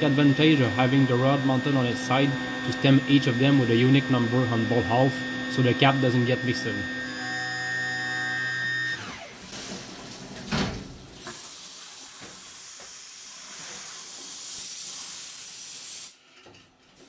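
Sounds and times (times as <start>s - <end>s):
mill spindle whining: 0.0s - 9.3s
coolant spray hissing: 11.2s - 16.2s.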